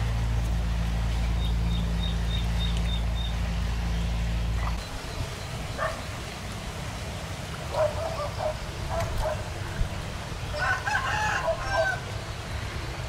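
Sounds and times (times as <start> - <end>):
low steady rumble: 0.0 - 13.0
rooster crowing: 10.5 - 12.1.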